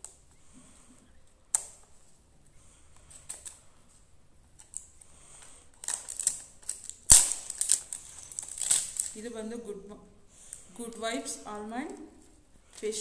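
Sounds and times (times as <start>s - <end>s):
cardboard snapping: 5.8s - 7.9s.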